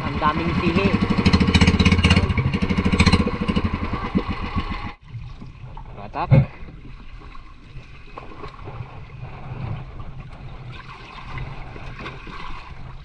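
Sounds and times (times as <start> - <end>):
water sloshing and splashing: 0.0 - 13.0
wind buffeting microphone: 0.0 - 13.0.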